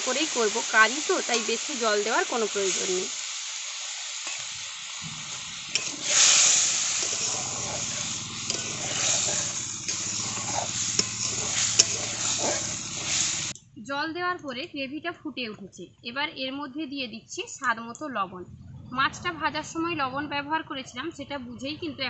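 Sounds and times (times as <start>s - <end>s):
gravy boiling: 0.0s - 13.6s
spices sizzling in hot oil: 0.0s - 13.6s
metal spatula scraping pan: 3.9s - 13.5s.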